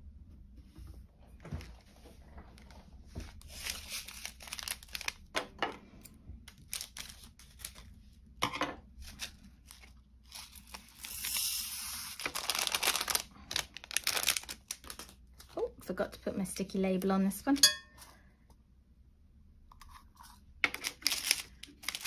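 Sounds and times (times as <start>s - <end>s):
plastic bags crinkling: 2.6s - 5.4s, 6.5s - 8.0s, 9.0s - 15.8s, 20.7s - 22.0s.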